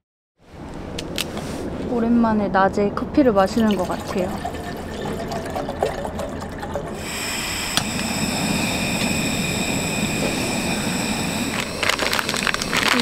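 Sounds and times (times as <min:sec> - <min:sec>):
water pouring into kettle: 0:03.4 - 0:13.0
gas stove burner hissing: 0:06.8 - 0:13.0.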